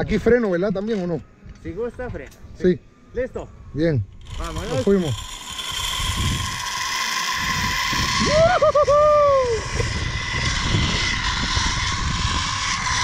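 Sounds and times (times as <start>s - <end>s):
wind on microphone: 4.0s - 13.0s
zip-line pulleys whining on cable: 4.1s - 13.0s
person whooping: 8.1s - 9.9s.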